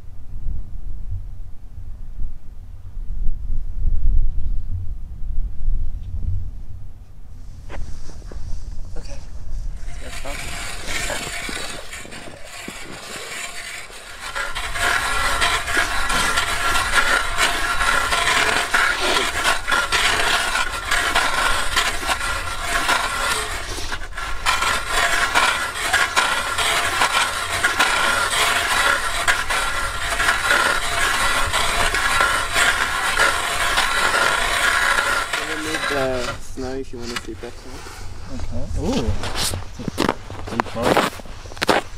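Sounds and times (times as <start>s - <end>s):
ice auger grinding through ice: 9.7s - 38.1s, 38.8s - 41.9s.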